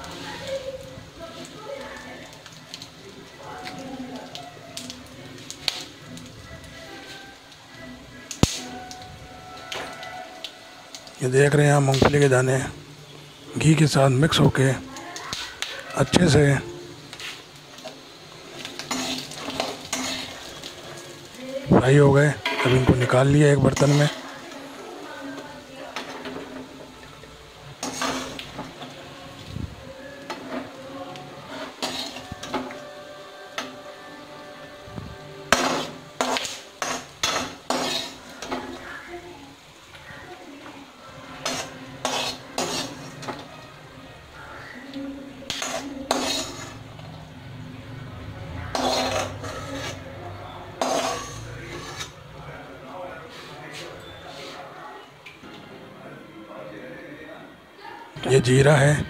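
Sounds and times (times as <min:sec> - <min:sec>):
faint sizzle of hot oil: 0:00.0 - 0:59.0
metal spoon scraping a pan: 0:18.6 - 0:20.9, 0:22.4 - 0:24.8, 0:27.8 - 0:29.0, 0:30.2 - 0:32.8, 0:35.5 - 0:39.1, 0:41.3 - 0:43.5, 0:45.4 - 0:47.1, 0:48.6 - 0:52.3.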